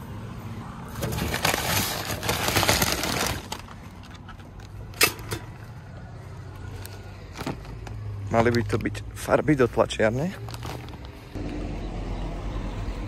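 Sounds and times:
parcel rustling: 0:10.3 - 0:11.4.

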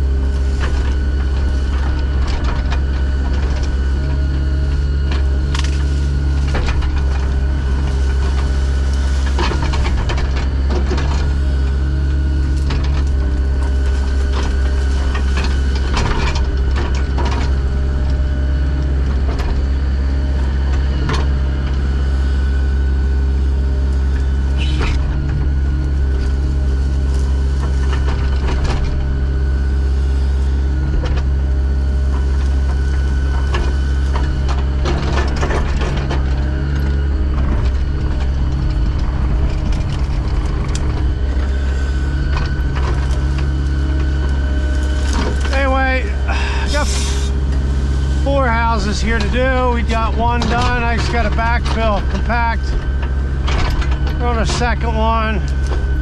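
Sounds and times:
heavy equipment engine running: 0:00.0 - 0:56.0.

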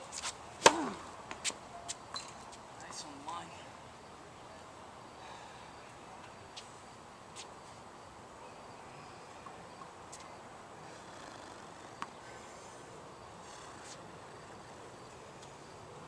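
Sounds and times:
faint insect chirring: 0:03.9 - 0:16.0.

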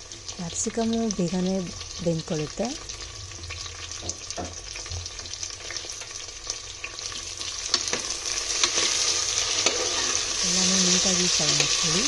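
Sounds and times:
vegetables sizzling in hot oil: 0:00.0 - 0:12.0
spoon scraping a pan: 0:07.1 - 0:12.0.

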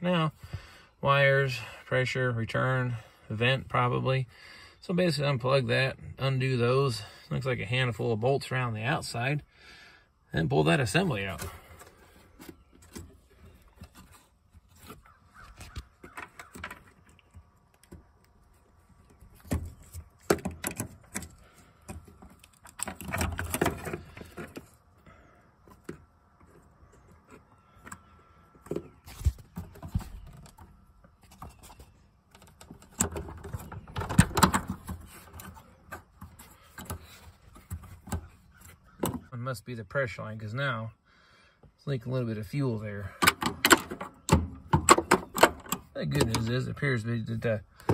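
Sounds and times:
clattering handling noise: 0:19.0 - 0:24.9, 0:25.6 - 0:39.3, 0:43.1 - 0:46.6.

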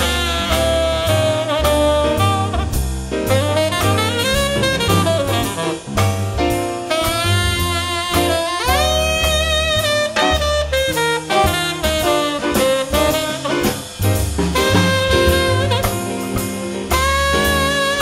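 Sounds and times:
tenor saxophone melody: 0:00.0 - 0:06.0, 0:06.8 - 0:18.0
drum kit: 0:00.0 - 0:18.0
walking bass: 0:00.0 - 0:18.0.

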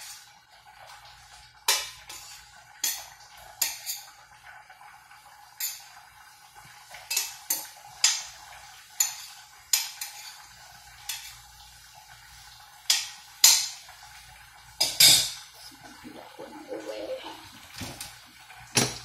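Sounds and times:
metal spoon clinking on pan: 0:09.0 - 0:11.4, 0:12.9 - 0:13.8.

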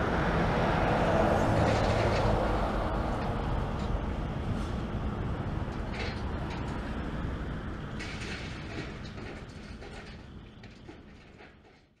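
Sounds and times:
excavator running: 0:00.0 - 0:12.0
rubble clattering and scraping: 0:08.0 - 0:12.0.

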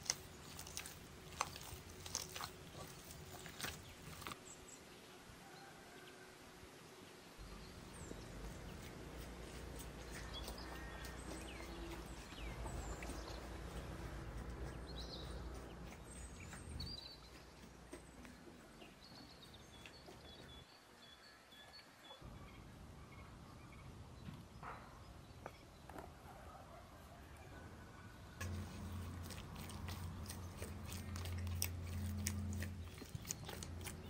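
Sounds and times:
hands kneading dough: 0:00.0 - 0:04.4, 0:07.9 - 0:20.3
small birds chirping: 0:00.0 - 0:05.1, 0:07.4 - 0:26.1, 0:28.4 - 0:34.0.

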